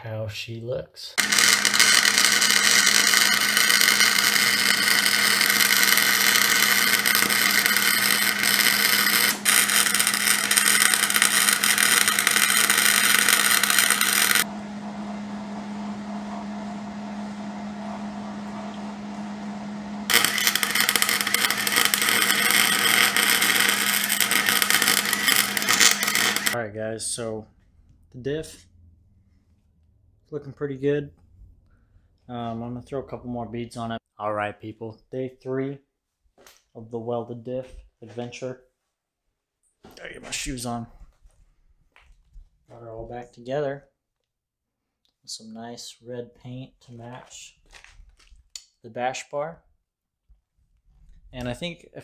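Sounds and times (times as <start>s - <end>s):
welder arc crackling hiss: 1.2s - 14.5s, 20.1s - 26.6s
low hum: 1.2s - 26.6s, 27.2s - 30.3s.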